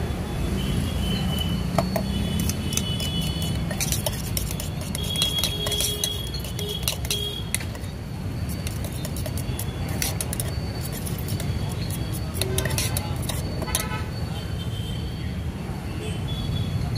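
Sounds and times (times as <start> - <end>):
spoon clinking against steel bowl: 1.6 - 14.0.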